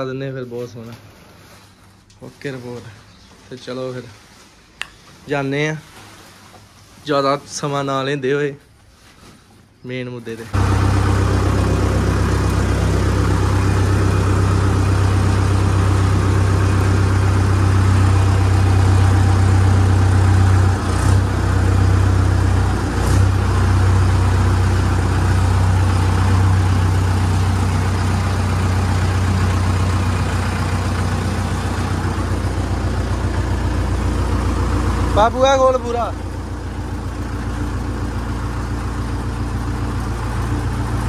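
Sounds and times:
tractor diesel engine running: 0:10.6 - 0:41.0.

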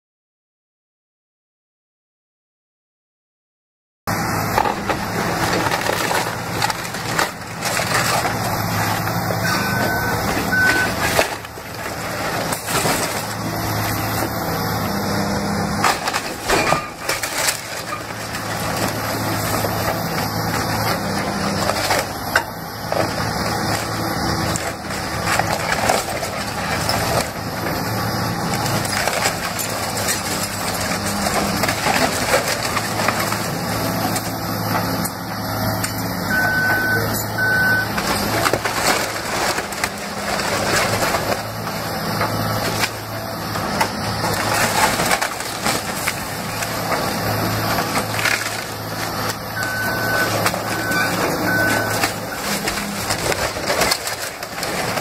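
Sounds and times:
excavator running: 0:04.1 - 0:55.0
debris crashing down: 0:04.6 - 0:14.3, 0:15.8 - 0:34.4, 0:36.5 - 0:55.0
timber cracking and splintering: 0:15.8 - 0:27.7, 0:28.3 - 0:34.4, 0:38.0 - 0:55.0.

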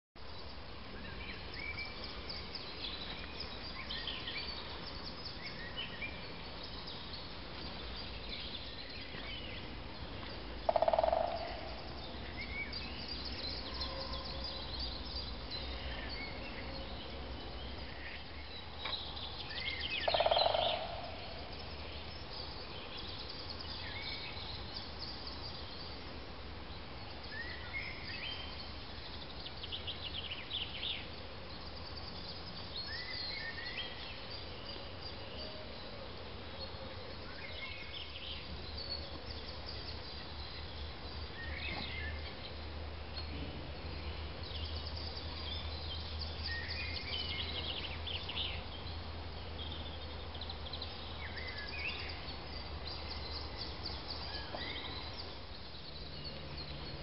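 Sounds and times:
birds chirping and trilling: 0:10.7 - 0:16.5, 0:18.2 - 0:25.7.

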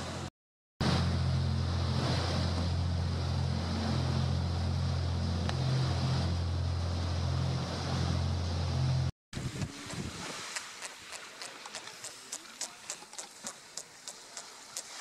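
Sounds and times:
low engine drone: 0:00.0 - 0:09.9
water noise: 0:00.0 - 0:15.0
rushing wind: 0:09.4 - 0:11.1.

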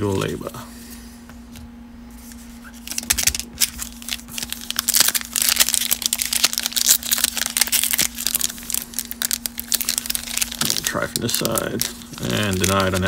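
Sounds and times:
foil wrapper crinkling: 0:02.6 - 0:13.0.

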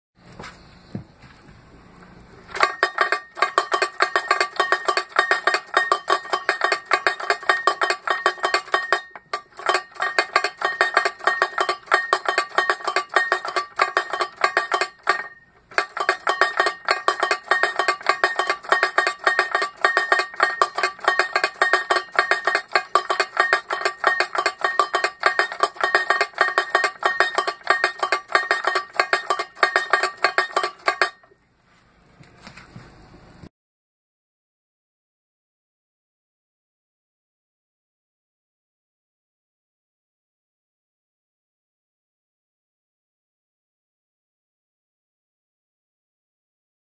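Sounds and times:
mallet striking tin-can drum: 0:02.6 - 0:31.3.

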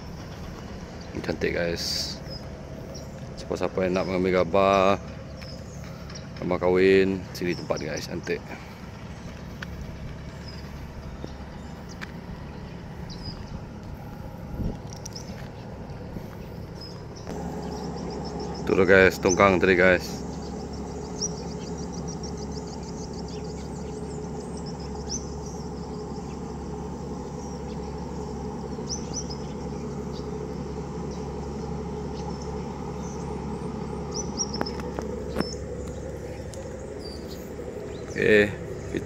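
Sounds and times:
birds chirping: 0:00.0 - 0:39.0
low engine hum: 0:00.0 - 0:39.0.

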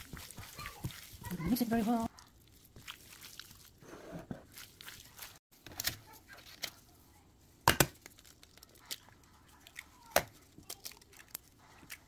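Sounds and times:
wet squelching of raw chicken: 0:00.0 - 0:03.8, 0:04.4 - 0:05.4.

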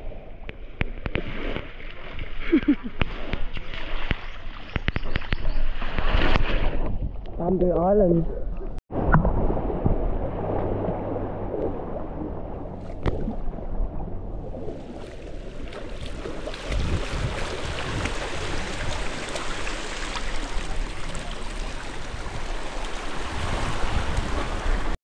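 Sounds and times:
wind rumbling on microphone: 0:00.0 - 0:25.0
waves washing over rocky shore: 0:15.2 - 0:25.0.

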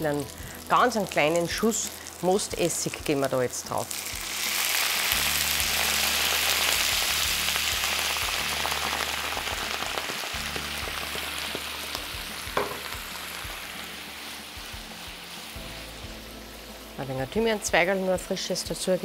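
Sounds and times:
liquid sizzling in hot pan: 0:00.0 - 0:19.0.

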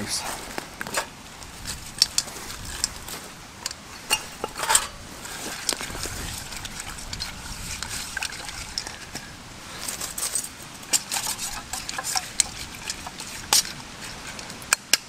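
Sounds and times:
short rustle: 0:00.0 - 0:14.6
metal cookware clinking: 0:03.6 - 0:09.3, 0:10.2 - 0:13.7.

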